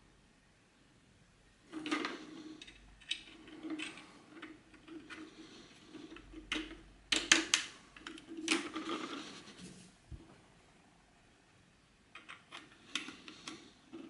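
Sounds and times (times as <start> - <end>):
plastic toy parts clicking: 6.4 - 9.2, 12.2 - 13.6.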